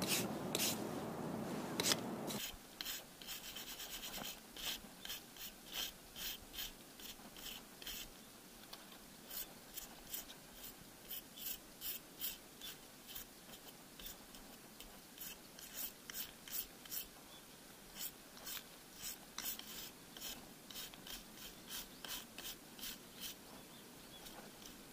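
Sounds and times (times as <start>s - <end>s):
wire brush scrubbing concrete: 0.0s - 0.9s, 18.0s - 23.4s.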